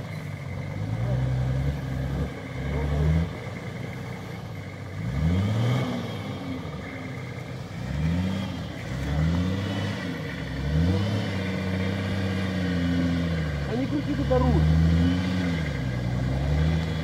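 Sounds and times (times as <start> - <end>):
car engine revving: 0.0 - 17.0.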